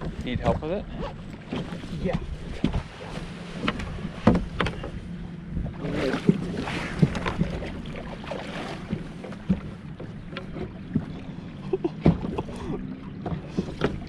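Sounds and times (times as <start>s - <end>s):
knocks against boat: 0.0s - 5.0s, 8.8s - 11.2s, 11.8s - 14.0s
wind buffeting microphone: 0.0s - 9.9s
boat engine hum: 0.0s - 14.0s.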